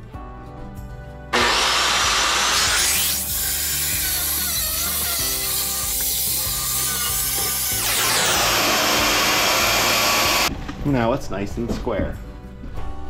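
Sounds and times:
power saw cutting wood: 0:01.3 - 0:10.5.

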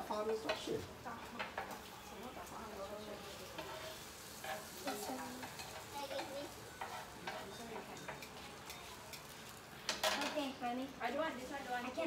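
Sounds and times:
food sizzling on grill pan: 0:00.0 - 0:12.0
utensils clicking and tapping: 0:04.4 - 0:10.4.

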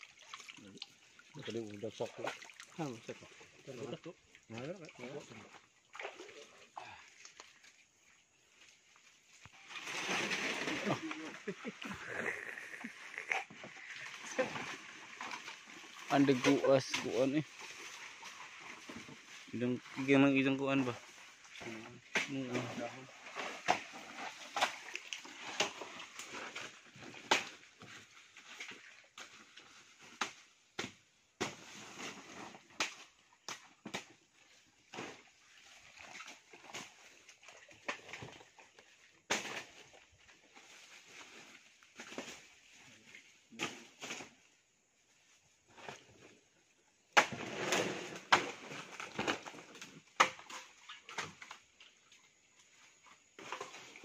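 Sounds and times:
rustling of leaves and stalks: 0:00.0 - 0:54.0
dry leaves and stalks rustling: 0:07.8 - 0:12.3, 0:13.2 - 0:19.8, 0:34.2 - 0:44.4
machete chopping plant stalks: 0:27.2 - 0:27.6, 0:30.1 - 0:34.1, 0:39.3 - 0:39.9, 0:47.2 - 0:51.4.

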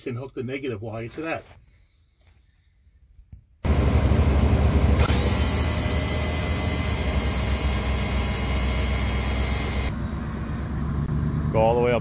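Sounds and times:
electric pump motor whining: 0:03.6 - 0:11.2.

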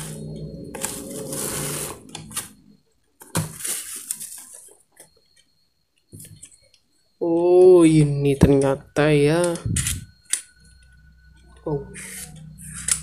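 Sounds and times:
plastic packaging crinkling: 0:03.2 - 0:05.2.

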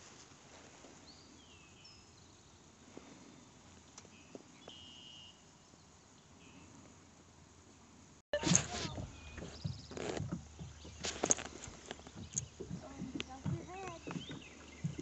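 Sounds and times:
quiet river ambience: 0:00.0 - 0:15.0
whistled bird calls: 0:04.1 - 0:05.4.

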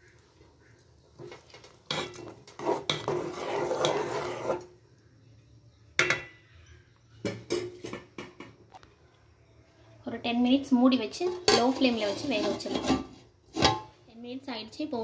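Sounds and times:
metal spoon scraping a pot: 0:01.2 - 0:04.8, 0:11.2 - 0:14.0.

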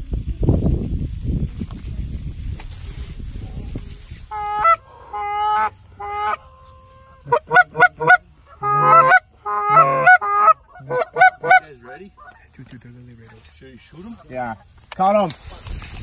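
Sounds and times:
goose honking and clucking: 0:04.3 - 0:12.5.

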